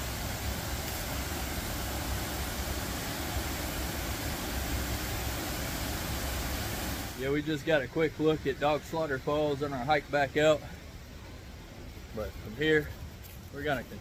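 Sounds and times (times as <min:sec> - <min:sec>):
waterfall roaring: 0:00.0 - 0:07.6.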